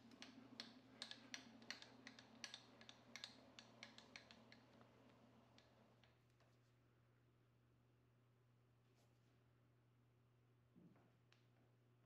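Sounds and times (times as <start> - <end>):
rapid irregular clicking: 0.1 - 4.9.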